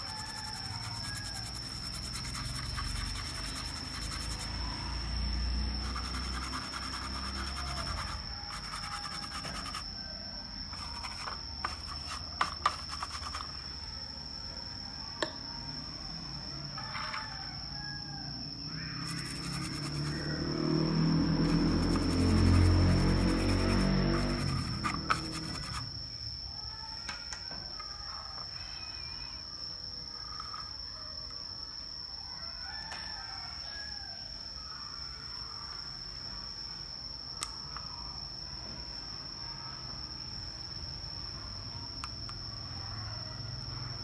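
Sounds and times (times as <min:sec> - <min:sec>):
brush scrubbing circuit board: 0:00.0 - 0:04.5, 0:05.8 - 0:09.8, 0:10.8 - 0:13.5, 0:19.0 - 0:20.2, 0:21.4 - 0:25.8
high-pitched whine: 0:00.0 - 0:26.4.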